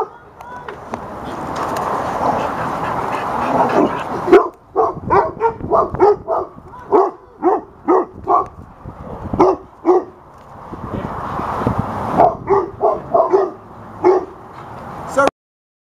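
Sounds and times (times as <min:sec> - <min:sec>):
rush of noise: 0:00.8 - 0:15.2
dogs barking: 0:02.0 - 0:08.6, 0:09.4 - 0:10.2, 0:12.1 - 0:14.5.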